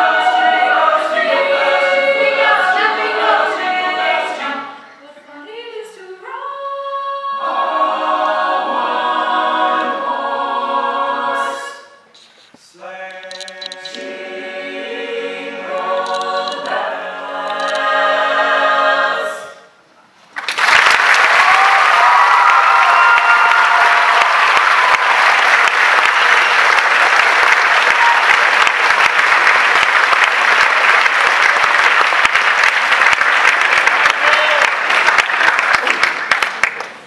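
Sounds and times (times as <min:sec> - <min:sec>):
choir singing: 0:00.0 - 0:12.0, 0:12.7 - 0:19.8
audience applause: 0:20.3 - 0:37.0.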